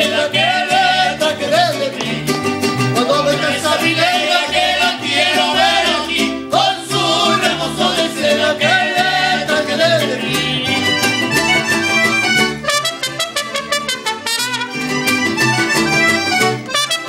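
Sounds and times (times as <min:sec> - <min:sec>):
man singing: 0:00.0 - 0:11.4
plucked bass line: 0:00.0 - 0:16.8
strummed guitars: 0:00.0 - 0:17.0.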